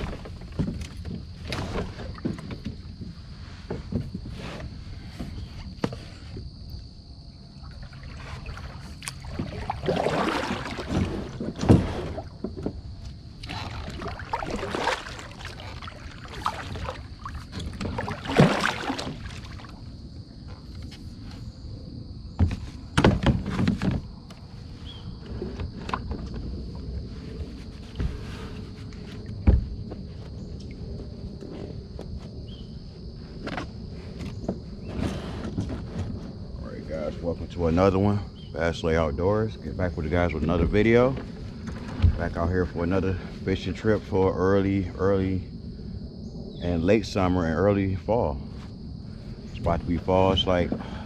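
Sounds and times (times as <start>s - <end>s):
paddle swishing through water: 0.0s - 6.4s, 7.6s - 21.2s, 23.4s - 29.5s.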